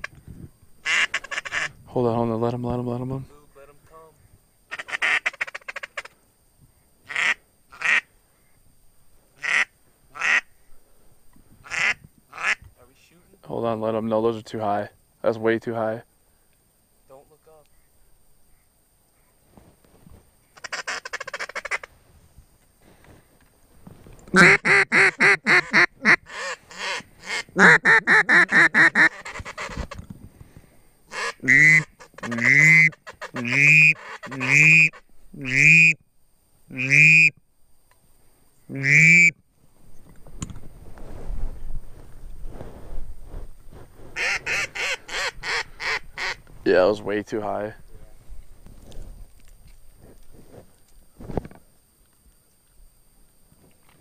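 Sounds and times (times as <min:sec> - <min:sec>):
duck call quacks: 0:00.8 - 0:01.7, 0:04.7 - 0:06.1, 0:07.1 - 0:08.1, 0:09.4 - 0:10.5, 0:11.6 - 0:12.6, 0:20.6 - 0:21.9, 0:24.3 - 0:30.0, 0:31.1 - 0:36.0, 0:36.7 - 0:37.3, 0:38.8 - 0:39.3, 0:44.2 - 0:46.4.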